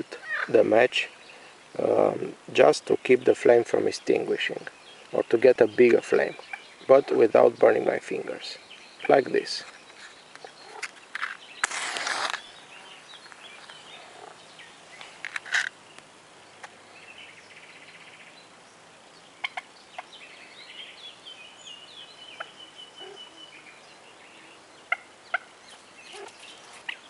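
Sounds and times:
bird calls and chirps: 2.9 - 27.0
match striking and igniting: 10.8 - 12.5.

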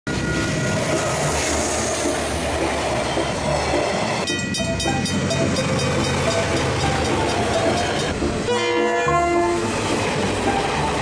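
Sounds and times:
diesel train rumble: 0.1 - 11.0
train rumbling: 0.1 - 11.0
level crossing bells ringing: 4.3 - 8.2.

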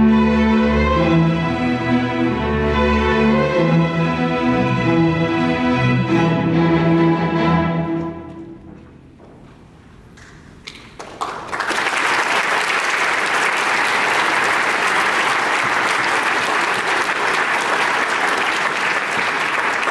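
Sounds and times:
audience applause: 10.7 - 19.9.

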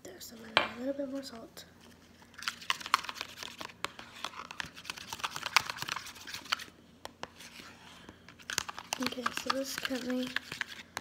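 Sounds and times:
knife scraping slime in bowl: 8.6 - 10.8.

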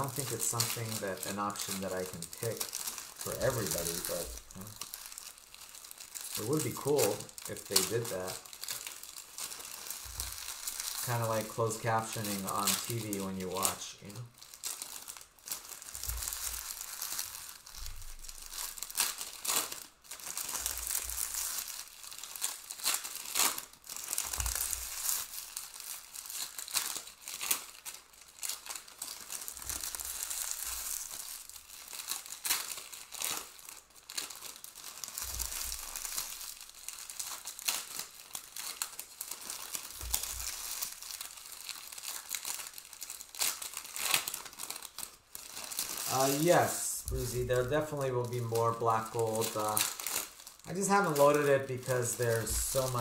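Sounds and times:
foil wrappers crinkling and tearing: 0.0 - 53.0.

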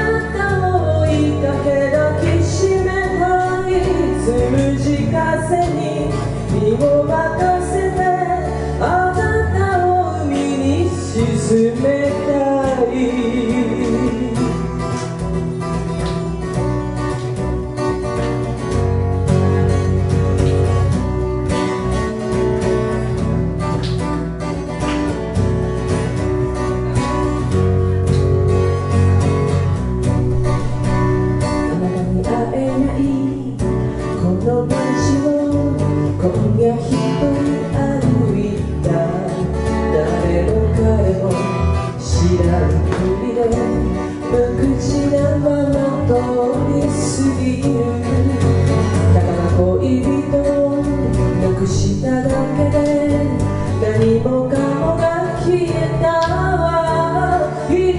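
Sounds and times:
woman singing: 0.0 - 14.9, 30.3 - 57.9
acoustic guitar: 0.0 - 57.9
electric bass: 0.0 - 57.9.

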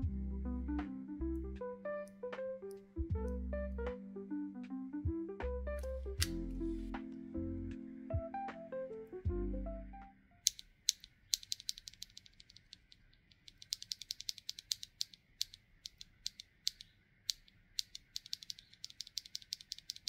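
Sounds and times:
ratchet-like mechanical clicking: 10.4 - 20.0.

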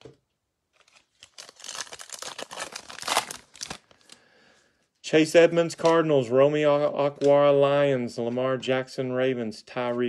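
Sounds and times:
foil wrapper tearing and crinkling: 0.7 - 4.2.

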